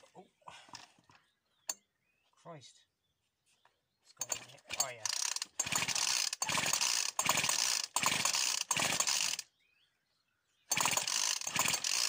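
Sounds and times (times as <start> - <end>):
pull-start cord rasping: 4.2 - 9.4, 10.7 - 12.0.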